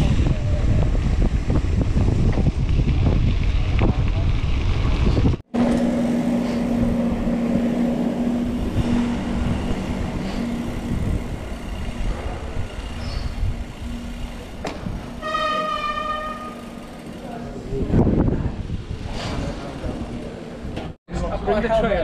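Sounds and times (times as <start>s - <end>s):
low engine hum: 0.0s - 15.2s
bicycle tyres rumbling on paving: 0.0s - 21.0s.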